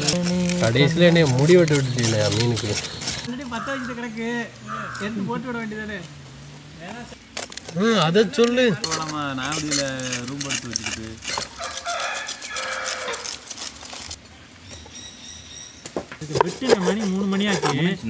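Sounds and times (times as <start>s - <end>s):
chickens calling: 11.5s - 14.2s.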